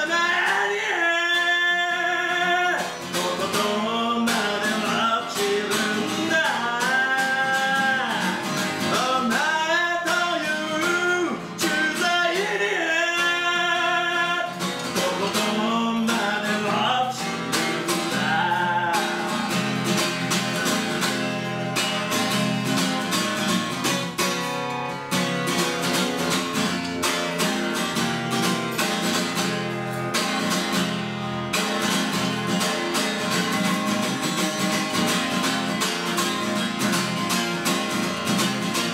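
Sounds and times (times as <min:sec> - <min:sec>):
man singing: 0:00.0 - 0:21.2
acoustic guitar strumming: 0:00.0 - 0:38.9.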